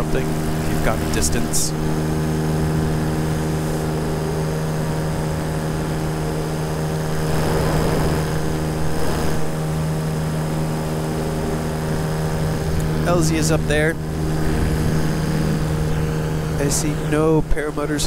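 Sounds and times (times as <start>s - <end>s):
electric motor and propeller drone: 0.0s - 18.0s
rushing noise: 7.0s - 9.8s.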